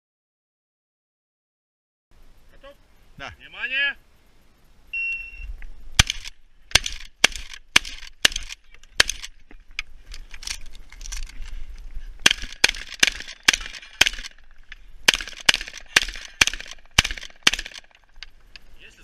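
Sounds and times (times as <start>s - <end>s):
shot timer beep: 4.9s - 5.5s
shotgun shots: 6.0s - 9.4s, 12.2s - 18.2s.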